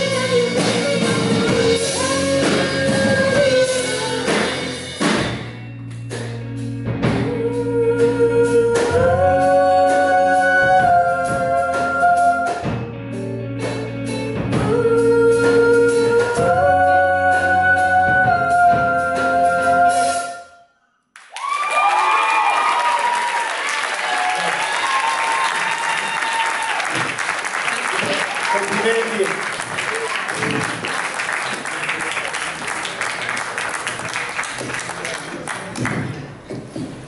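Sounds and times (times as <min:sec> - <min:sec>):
live rock band: 0:00.0 - 0:20.3.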